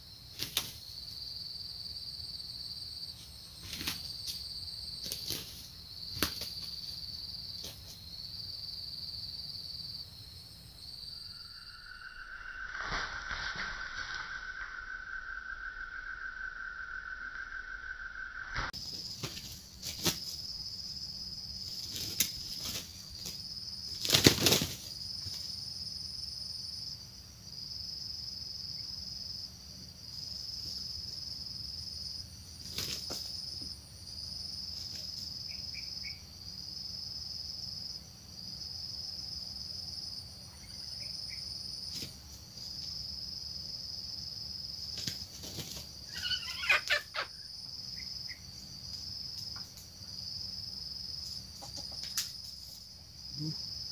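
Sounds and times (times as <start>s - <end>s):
high insect drone: 0.0s - 53.9s
birds beating wings: 0.3s - 0.8s, 3.6s - 4.4s, 5.0s - 8.0s, 18.8s - 20.5s, 21.6s - 25.5s, 32.6s - 33.4s, 44.9s - 47.3s
bird squawks: 46.1s - 47.4s.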